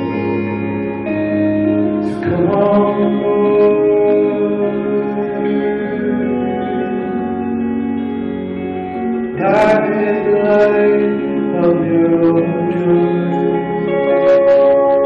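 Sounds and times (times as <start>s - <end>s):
live electric guitar music: 0.0s - 15.0s.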